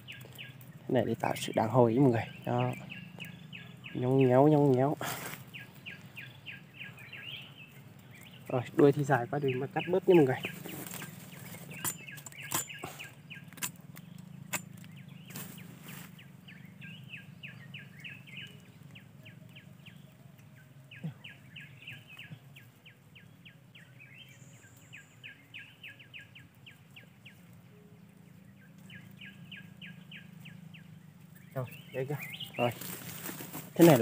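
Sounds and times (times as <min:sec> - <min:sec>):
high chirps from wildlife: 0:00.0 - 0:34.0
twigs snapping: 0:04.0 - 0:09.1, 0:09.8 - 0:16.2, 0:31.3 - 0:34.0.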